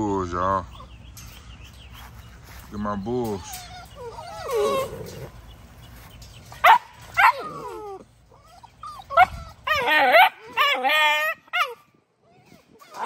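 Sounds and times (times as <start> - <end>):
puppies yipping: 3.1 - 13.0
puppy whining: 3.4 - 5.4, 7.2 - 13.0.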